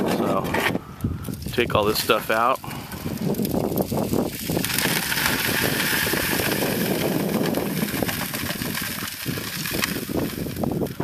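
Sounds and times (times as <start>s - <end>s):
gravel clattering on a tray: 1.3s - 11.0s
sand pouring into a bucket: 1.5s - 11.0s
small blower engine running: 4.3s - 11.0s.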